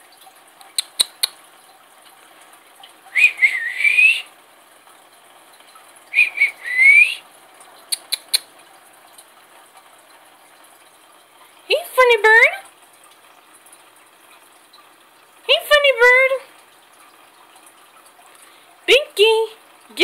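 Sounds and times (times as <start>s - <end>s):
person whistling: 3.2s - 4.3s, 6.2s - 7.2s
quick clicks: 7.9s - 8.5s.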